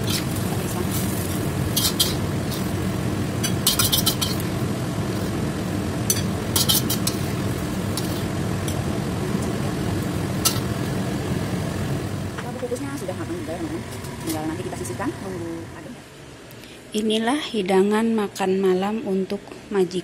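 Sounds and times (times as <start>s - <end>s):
metal spatula scraping wok: 0.0s - 2.8s, 3.4s - 4.6s, 6.1s - 8.8s, 10.4s - 10.7s
stove rumble: 0.0s - 16.4s.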